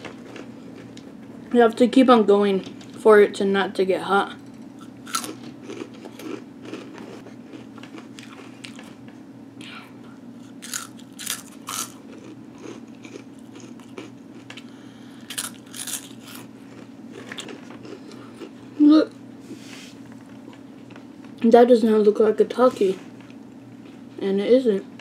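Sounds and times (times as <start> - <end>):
steady low hum: 0.0 - 25.0
mouth chewing crunchy snacks: 4.8 - 9.0, 10.4 - 18.8.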